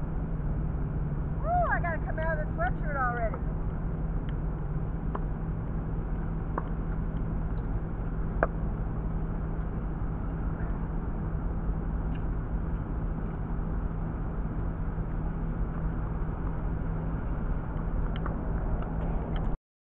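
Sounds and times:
background rumble: 0:00.0 - 0:19.6
low hum: 0:00.0 - 0:19.6.

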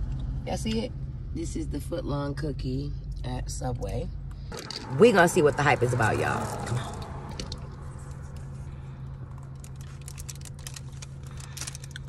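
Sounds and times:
car cabin hum: 0:03.3 - 0:12.0
food packaging crinkling: 0:09.4 - 0:12.0.

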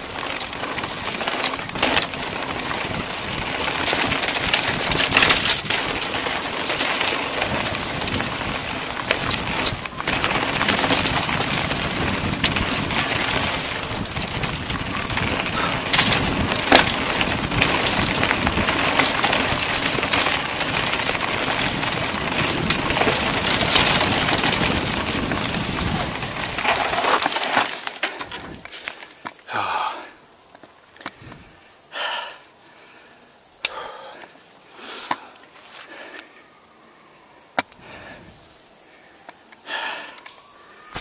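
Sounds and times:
bike rattling and clicking: 0:00.0 - 0:29.4
tyre and wind noise: 0:00.0 - 0:29.4, 0:30.6 - 0:31.6.

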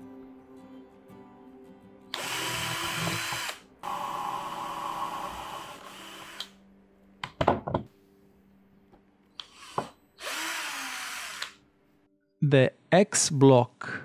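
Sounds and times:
cordless drill drilling metal: 0:02.1 - 0:06.6, 0:09.4 - 0:11.6.

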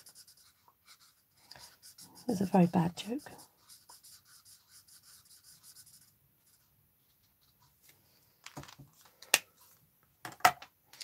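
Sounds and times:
marker nib rubbing on cardstock: 0:00.0 - 0:06.6.

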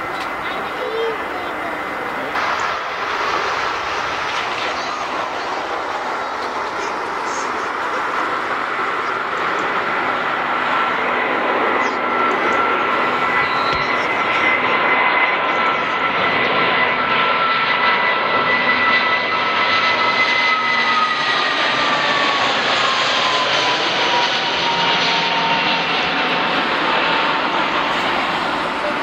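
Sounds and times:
loud rushing roar: 0:00.0 - 0:14.9
jet engines whining: 0:00.0 - 0:29.0.

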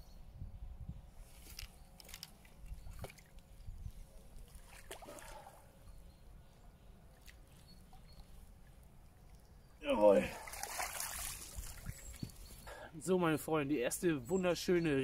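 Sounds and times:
water splashing: 0:04.4 - 0:05.6, 0:09.8 - 0:12.4.

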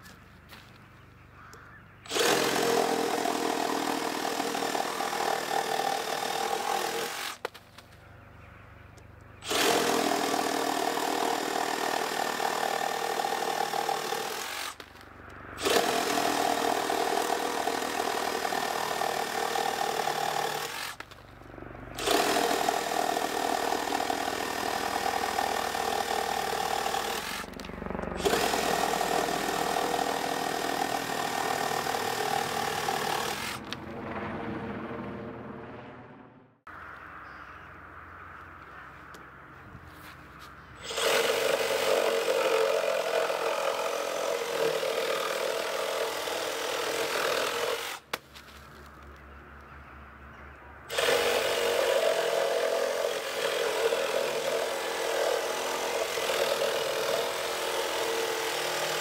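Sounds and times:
reciprocating saw cutting wood: 0:02.1 - 0:07.5, 0:09.4 - 0:14.9, 0:15.6 - 0:21.2, 0:22.0 - 0:27.6, 0:28.2 - 0:33.7, 0:40.8 - 0:48.2, 0:50.9 - 0:59.0.

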